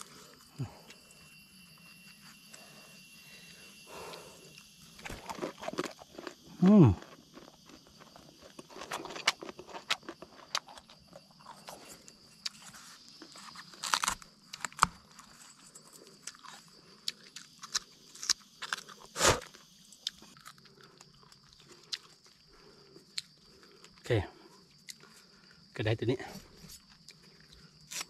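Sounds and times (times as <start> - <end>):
plant shoot snapping and crunching: 13.5 - 15.0.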